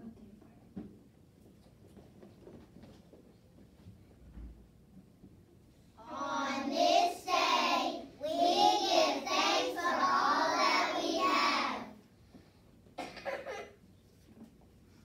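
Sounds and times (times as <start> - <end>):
children singing together: 6.0 - 12.0.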